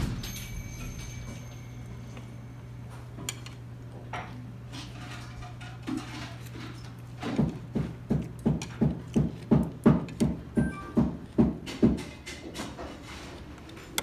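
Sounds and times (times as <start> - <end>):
low hum: 0.0 - 3.9
tableware clinking: 0.0 - 4.4.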